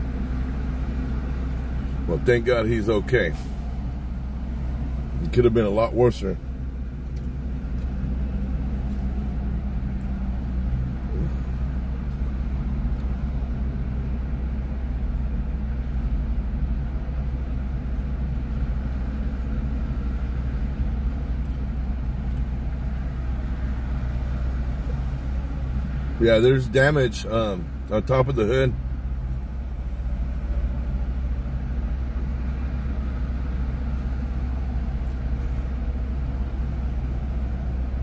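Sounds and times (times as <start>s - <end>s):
freeway traffic rumble: 0.0s - 38.0s
low hum: 28.7s - 38.0s.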